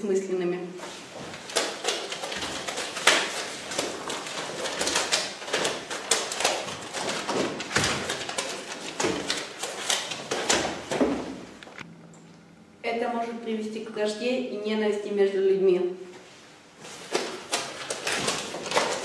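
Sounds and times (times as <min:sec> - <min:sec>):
sticky notes ripping and rustling: 0:01.3 - 0:11.8, 0:16.9 - 0:19.0.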